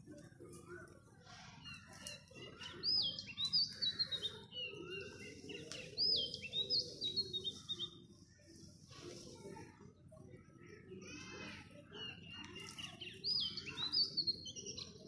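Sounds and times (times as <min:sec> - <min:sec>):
songbird singing: 0:01.5 - 0:08.5, 0:12.0 - 0:15.0.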